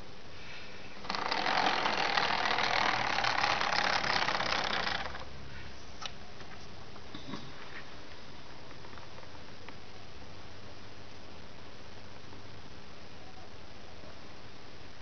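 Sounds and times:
small electric motor whirring: 0:01.0 - 0:05.3.

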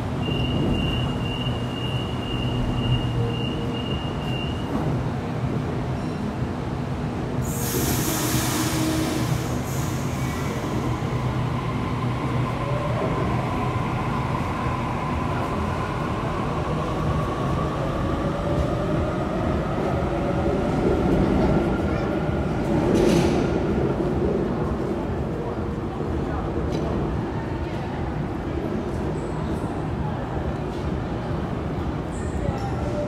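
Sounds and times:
train rumbling: 0:00.0 - 0:33.0
air hiss: 0:07.4 - 0:10.7.

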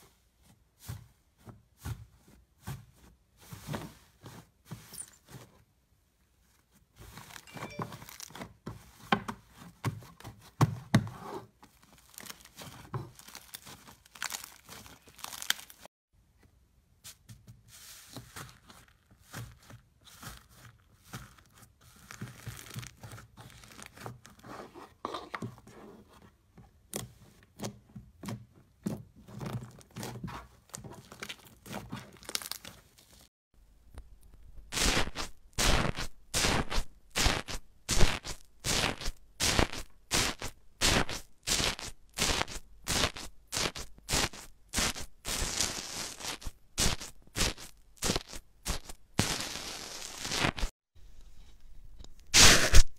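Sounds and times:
slime squishing: 0:11.8 - 0:15.9, 0:28.9 - 0:33.3.

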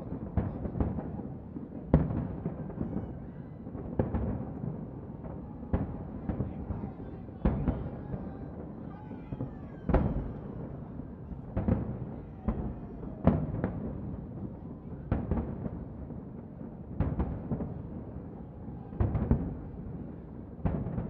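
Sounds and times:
firework shells booming: 0:09.4 - 0:14.3.

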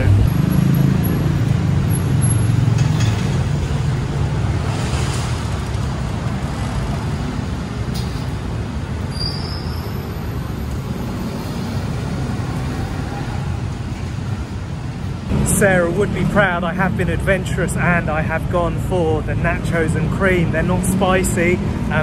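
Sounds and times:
road traffic rumble: 0:00.0 - 0:22.0
brief high squeal: 0:09.1 - 0:10.0.

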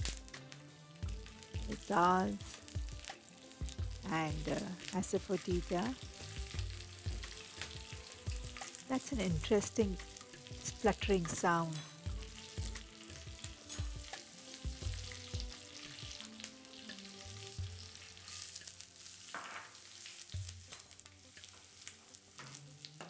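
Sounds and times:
hot oil sizzling and spluttering: 0:00.0 - 0:23.0
pops and crackles: 0:18.3 - 0:23.0.

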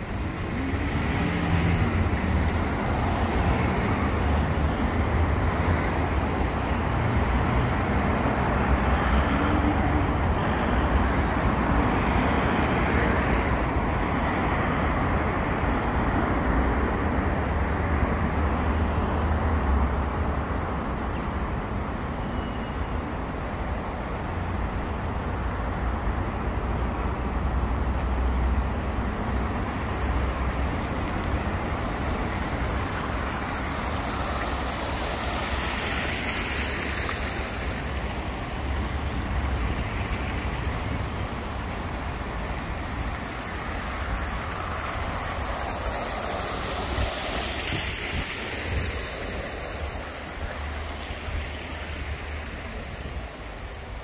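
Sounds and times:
cars passing: 0:00.0 - 0:54.0
road traffic hum: 0:00.0 - 0:54.0
wind rumbling on microphone: 0:24.4 - 0:54.0.

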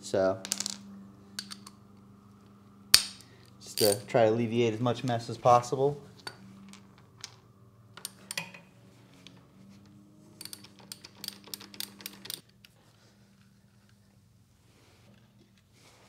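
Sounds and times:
faint low hum: 0:00.0 - 0:11.1
ratchet clicking: 0:10.4 - 0:12.4.

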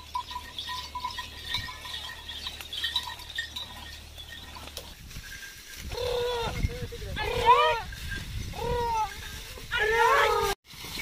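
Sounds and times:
metal bells jingling: 0:00.0 - 0:11.0.

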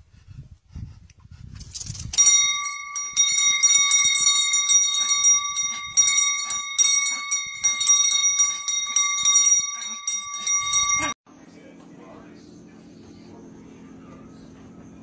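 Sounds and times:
small metal bell clanging: 0:02.1 - 0:11.2.

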